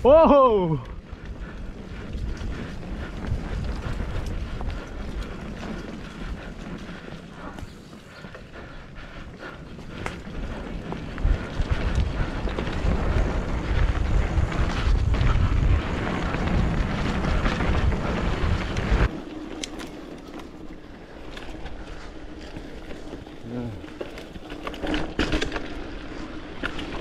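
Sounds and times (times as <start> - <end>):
wind buffeting microphone: 0.0 - 19.2.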